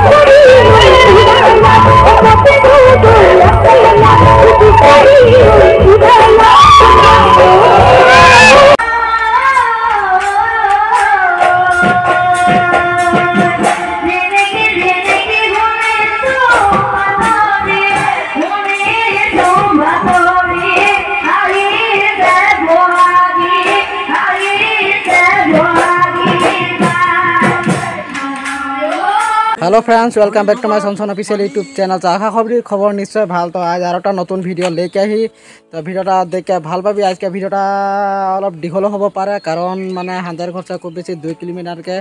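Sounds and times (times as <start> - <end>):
woman singing: 0.0 - 29.6.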